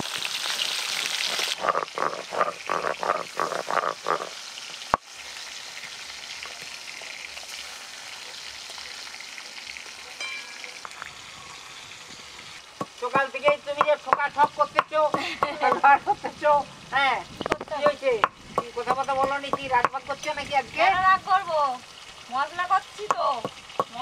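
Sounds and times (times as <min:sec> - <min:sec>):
fish sizzling in oil: 0:00.0 - 0:24.0
spatula scraping pan: 0:01.6 - 0:04.4.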